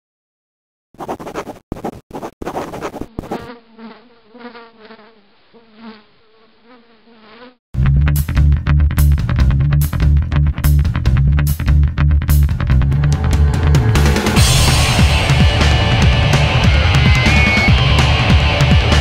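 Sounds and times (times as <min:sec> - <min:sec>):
pencil scribbling on paper: 0:01.0 - 0:03.6
wavering insect-like buzz: 0:02.6 - 0:07.6
loud music with heavy bass: 0:07.8 - 0:19.0.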